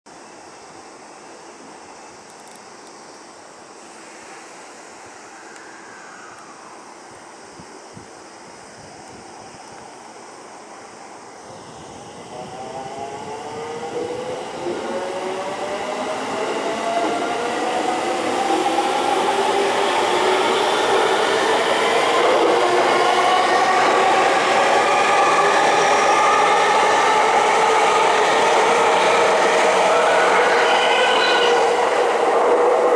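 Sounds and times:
train wheels on rails: 9.0 - 32.9
electric train motors whining: 11.6 - 32.9.

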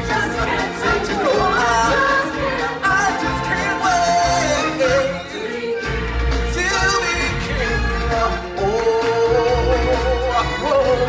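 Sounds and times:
person singing: 0.0 - 11.0.

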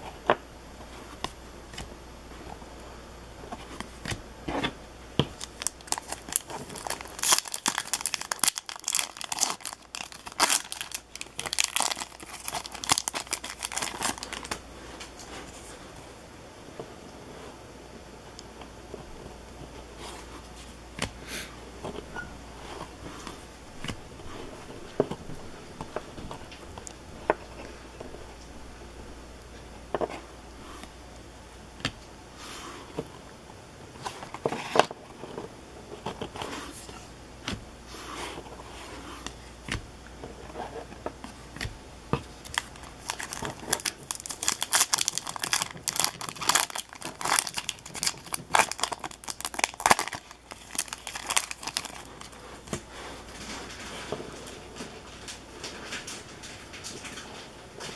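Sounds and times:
card pack wrapper tearing: 5.4 - 14.6, 42.4 - 52.3.

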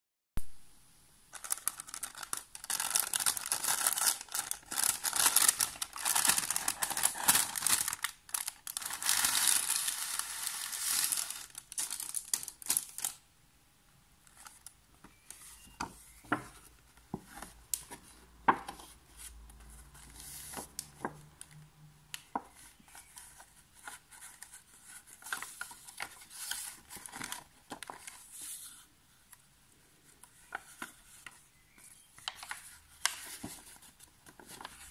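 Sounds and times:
book pages rustling: 1.3 - 13.2, 14.3 - 21.5, 22.2 - 29.4, 30.0 - 34.9
paper envelope crinkling: 1.3 - 13.2, 22.2 - 28.8, 30.3 - 34.9.

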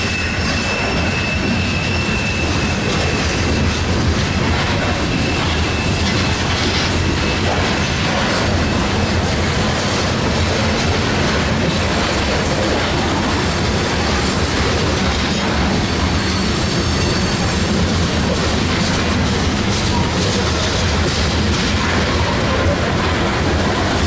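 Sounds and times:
freight train wheels rumbling: 0.0 - 24.0.

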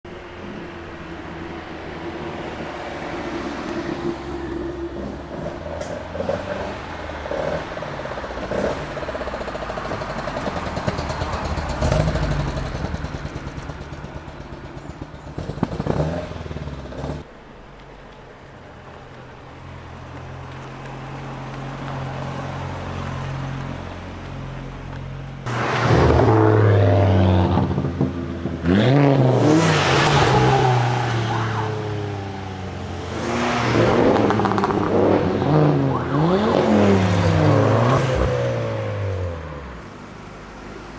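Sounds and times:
car engine pulling away: 3.6 - 17.4
quieter engine pulling away: 7.6 - 17.6
engines revving hard: 25.5 - 39.8.

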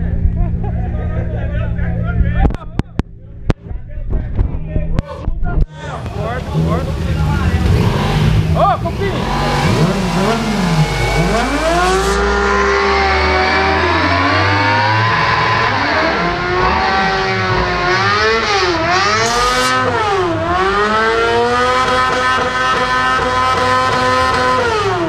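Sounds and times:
motorbike engine revving: 5.9 - 25.0
tyre spraying water: 6.0 - 12.3.

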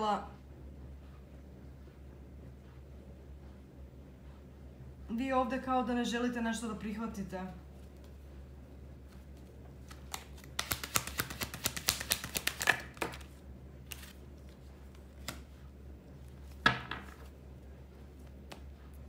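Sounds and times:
cards being shuffled: 9.1 - 15.6.

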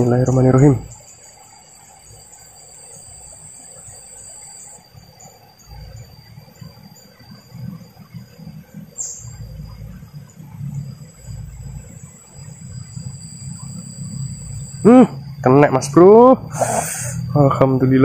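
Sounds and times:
insects singing: 0.0 - 18.0
irregular low rumble: 7.5 - 16.5.

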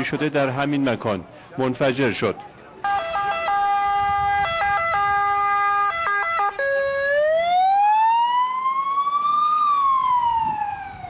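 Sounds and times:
emergency vehicle siren: 2.8 - 11.0.

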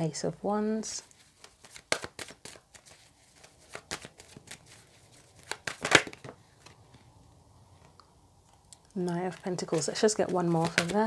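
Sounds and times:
cards being shuffled: 1.0 - 7.0, 9.0 - 11.0.

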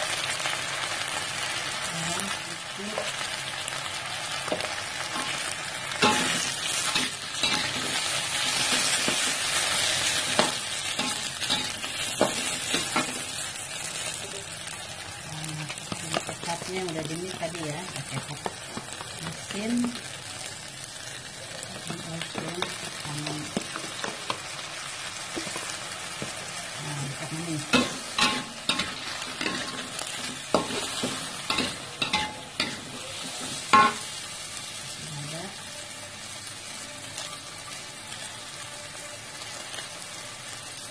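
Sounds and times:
food sizzling in a wok: 0.0 - 40.9
metal spatula scraping wok: 6.0 - 13.4, 27.6 - 34.1.

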